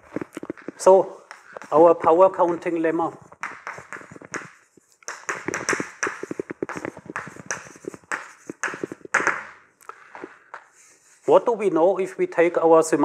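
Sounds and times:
chalk writing on blackboard: 3.4s - 9.4s, 10.6s - 11.4s.

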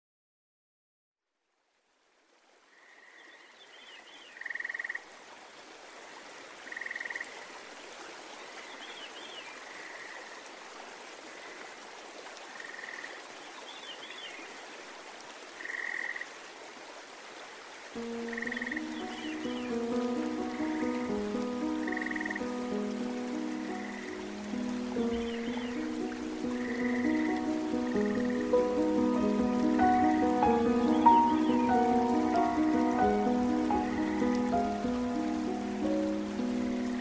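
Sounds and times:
steady watery hiss: 6.0s - 37.0s
music: 18.0s - 37.0s.

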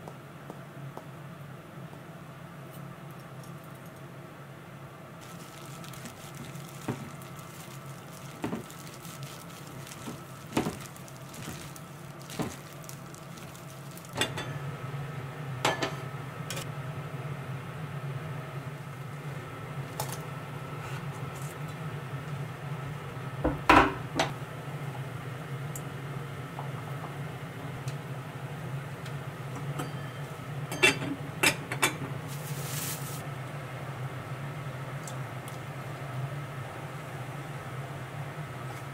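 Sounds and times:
hands mixing food in a bowl: 5.2s - 14.3s.

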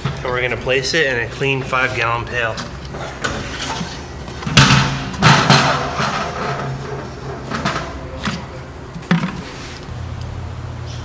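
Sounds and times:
plastic pail knocking on steel drum: 4.4s - 9.5s.

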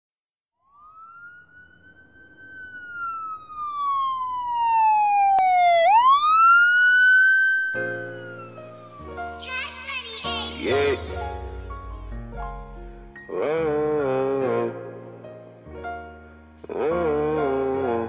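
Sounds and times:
siren wail: 0.6s - 9.4s.

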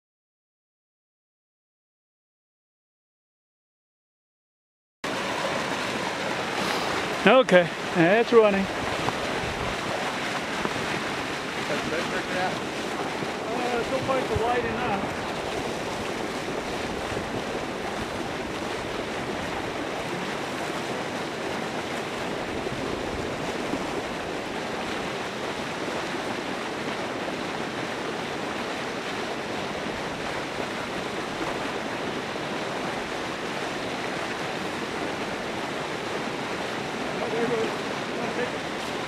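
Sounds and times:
water churning and splashing: 5.0s - 39.0s.

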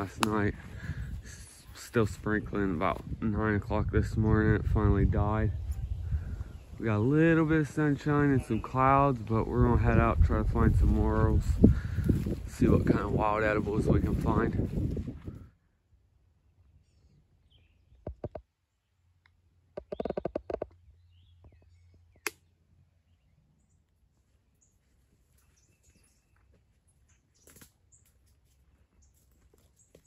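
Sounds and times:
faint birds chirping: 0.0s - 13.4s, 15.2s - 30.0s
sharp clicks: 22.2s - 22.5s.

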